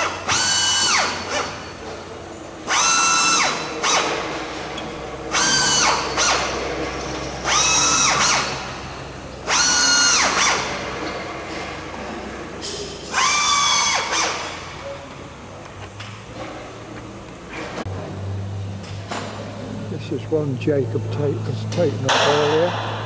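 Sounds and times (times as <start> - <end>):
pneumatic air drill whining: 0.0 - 15.2.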